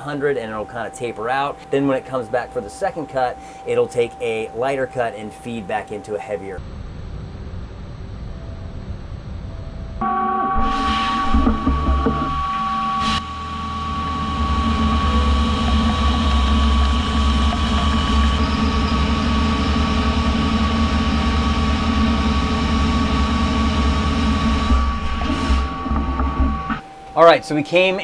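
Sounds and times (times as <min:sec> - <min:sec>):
lathe humming with high tone: 0:00.0 - 0:06.5, 0:10.2 - 0:27.6
deep machine rumble: 0:06.6 - 0:26.8.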